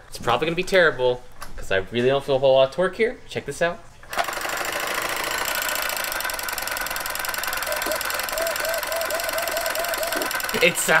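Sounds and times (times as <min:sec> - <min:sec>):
solenoid engine clattering: 0:04.1 - 0:11.0.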